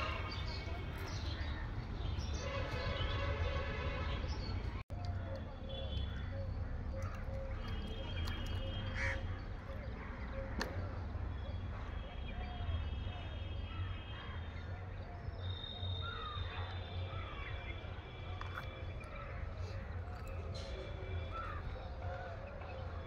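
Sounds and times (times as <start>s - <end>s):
birds calling: 4.0s - 12.8s, 13.4s - 23.0s.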